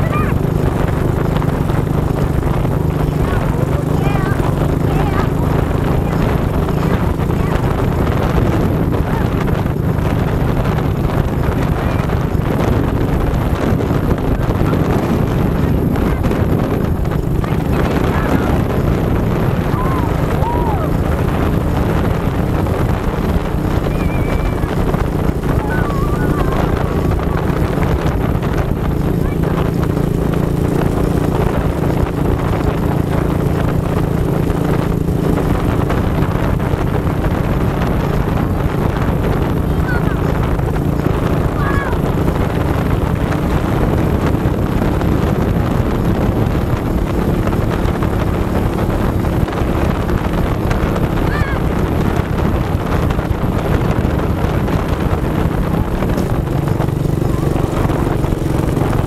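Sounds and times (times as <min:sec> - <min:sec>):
atv engine running: 0:00.0 - 0:59.0
wind buffeting microphone: 0:00.0 - 0:59.0.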